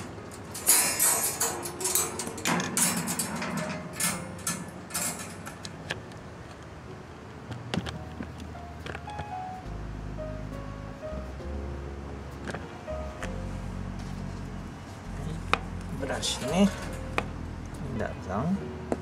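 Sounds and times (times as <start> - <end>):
wire pet cage rattling: 0.0 - 5.8, 16.1 - 17.3.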